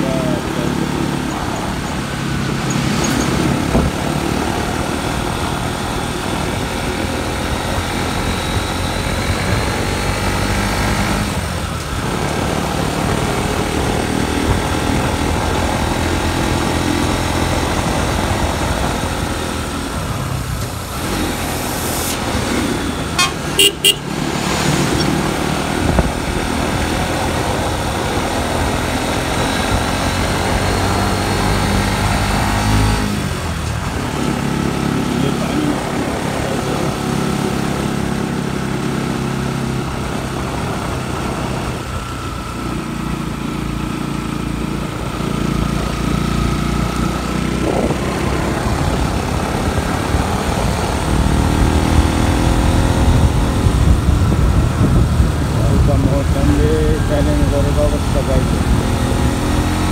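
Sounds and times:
motorcycle engine running: 0.0s - 59.9s
short horn beeps: 23.1s - 24.2s.

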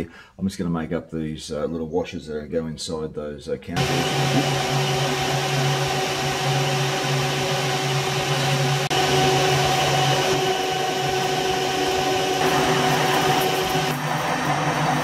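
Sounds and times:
metal lathe humming: 3.8s - 15.0s.

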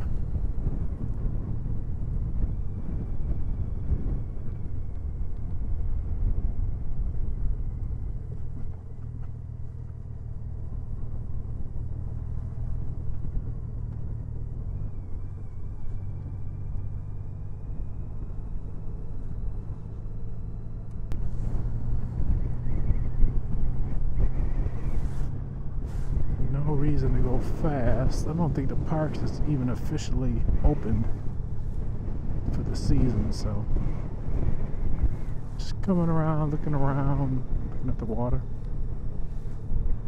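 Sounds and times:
faint high whine: 0.0s - 40.0s
motorcycle engine cruising: 0.0s - 40.0s.

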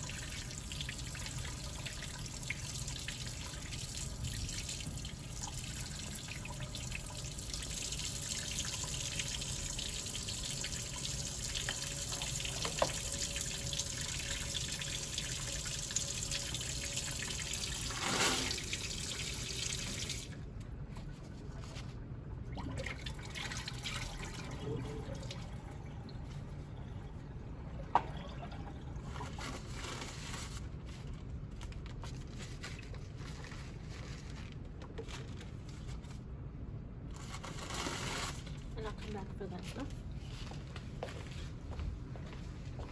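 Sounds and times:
tap water running into sink: 0.0s - 20.3s
paper towel rustling: 29.0s - 36.4s.

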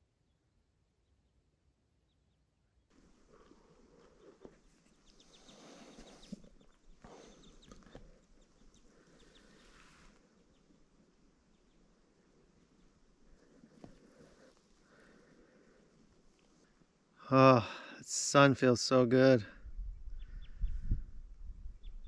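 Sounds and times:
small birds chirping: 2.0s - 17.2s, 19.6s - 22.0s
soft rustling: 2.9s - 17.0s.

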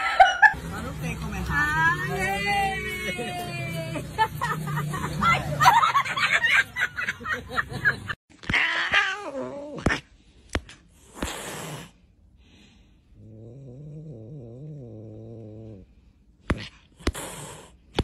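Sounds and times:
cat yowling: 8.4s - 9.9s
cat growling: 8.4s - 10.1s, 13.2s - 16.0s
cat hissing: 11.0s - 12.1s, 16.5s - 18.0s.

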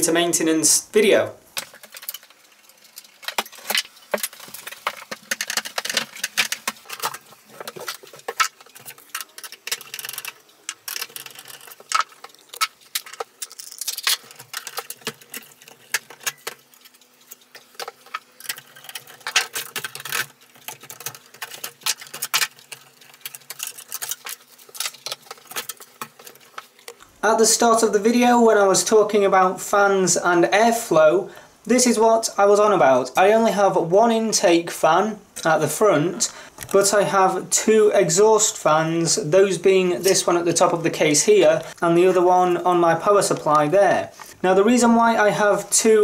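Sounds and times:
plastic connectors clicking and rattling: 1.6s - 27.1s.

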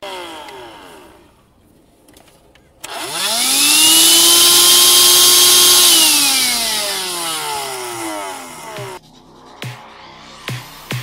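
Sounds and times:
handheld vacuum motor whine: 0.0s - 1.4s, 2.8s - 9.0s
rush of air: 9.0s - 11.0s.

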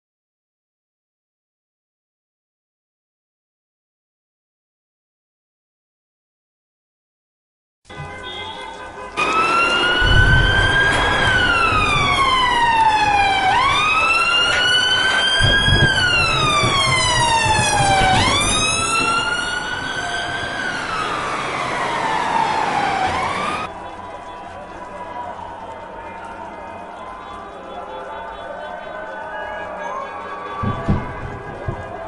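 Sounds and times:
emergency siren wailing: 8.0s - 32.0s
rain hissing: 8.6s - 28.5s.

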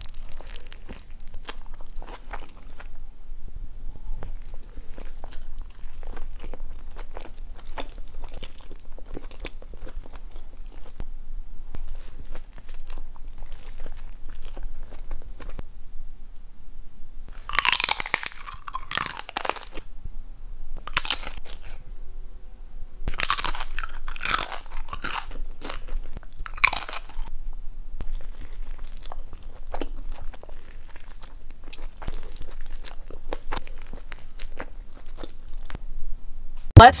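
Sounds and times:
chips crunching: 17.4s - 19.8s, 20.9s - 21.6s, 23.1s - 27.3s.

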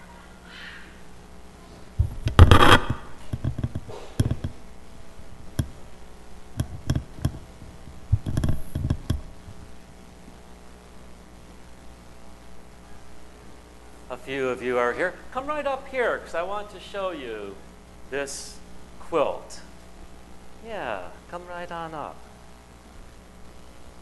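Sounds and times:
knocks and bumps: 2.0s - 4.6s.

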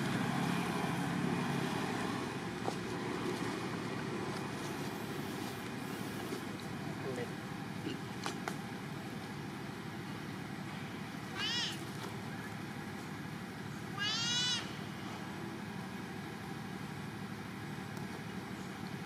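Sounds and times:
infant monkey high-pitched calls: 11.3s - 11.8s, 13.9s - 15.0s.

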